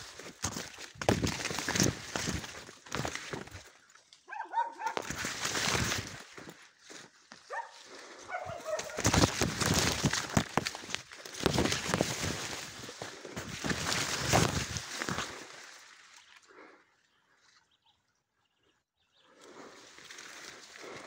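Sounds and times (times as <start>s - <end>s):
footsteps: 0.0s - 3.8s, 4.7s - 15.6s
rustling corn leaves: 0.0s - 16.8s, 19.4s - 21.0s
dog barking: 4.3s - 5.1s, 7.5s - 9.0s.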